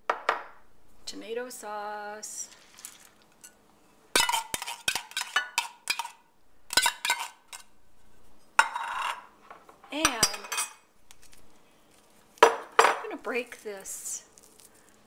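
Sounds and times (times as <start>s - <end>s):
spoon scraping: 2.5s - 9.3s, 10.0s - 11.6s
metal spoon clinking in tin can: 4.2s - 7.6s.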